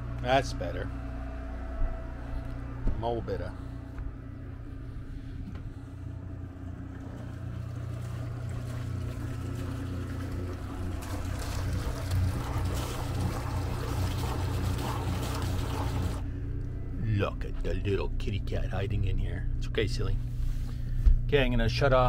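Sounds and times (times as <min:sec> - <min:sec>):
generator droning: 0:00.0 - 0:22.0
water splashing from exhaust: 0:06.0 - 0:16.4.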